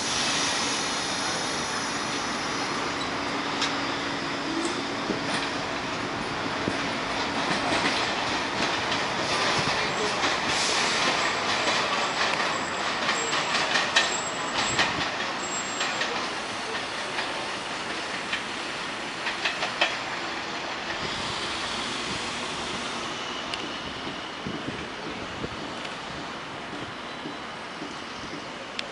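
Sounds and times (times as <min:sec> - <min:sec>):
subway train wheel and track noise: 0:00.0 - 0:28.9
high wheel squeal: 0:09.9 - 0:16.6, 0:21.0 - 0:25.3.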